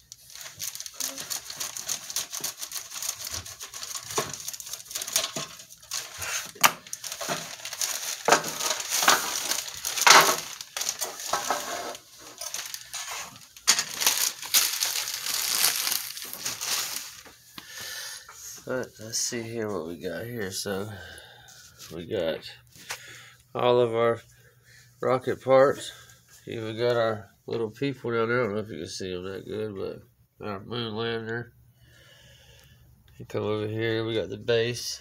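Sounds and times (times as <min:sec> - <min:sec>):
plastic bags crinkling: 0:00.0 - 0:17.8.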